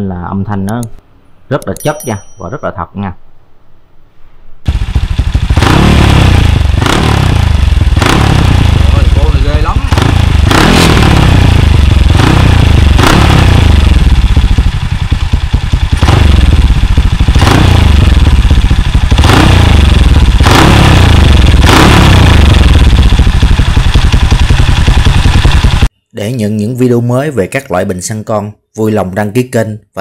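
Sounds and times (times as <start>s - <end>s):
motorcycle engine revving: 4.7s - 25.9s.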